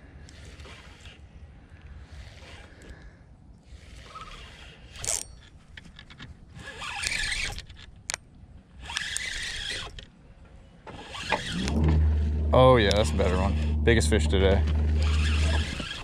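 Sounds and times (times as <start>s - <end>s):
fishing reel whirring: 3.7s - 5.3s, 8.8s - 10.0s, 11.0s - 16.0s.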